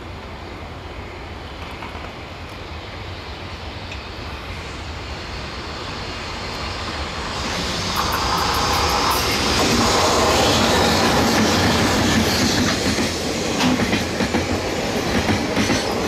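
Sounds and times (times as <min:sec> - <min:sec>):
freight train rumbling: 0:00.0 - 0:16.0.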